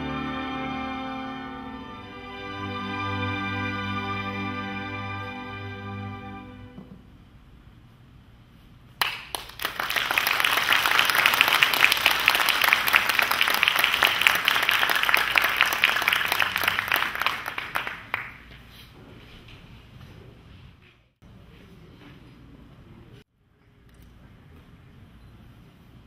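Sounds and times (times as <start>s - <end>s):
audience applauding: 9.0s - 18.5s.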